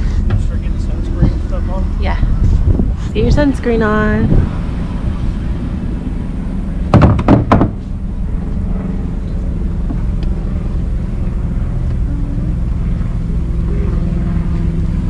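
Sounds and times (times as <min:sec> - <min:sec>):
steady low hum: 0:00.0 - 0:15.0
loud knocks: 0:06.9 - 0:07.8.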